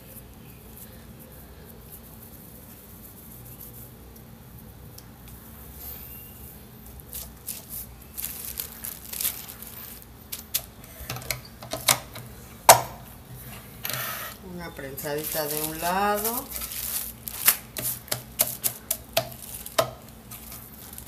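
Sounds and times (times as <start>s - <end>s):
plastic rustling: 7.0s - 12.0s, 13.4s - 21.0s.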